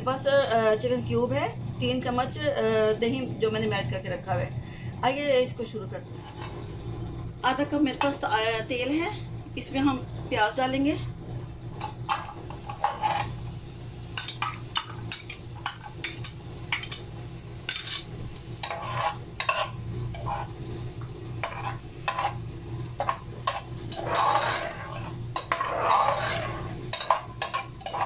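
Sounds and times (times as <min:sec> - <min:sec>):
onions sizzling in oil: 0:11.8 - 0:28.0
metal spoon scraping a pot: 0:12.1 - 0:13.4, 0:17.7 - 0:20.6, 0:21.4 - 0:22.4, 0:23.0 - 0:28.0.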